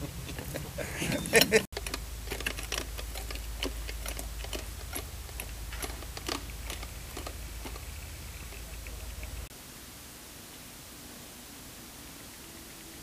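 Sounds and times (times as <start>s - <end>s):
steady hiss: 0.0s - 13.0s
sharp clicks and ticks: 1.4s - 9.5s.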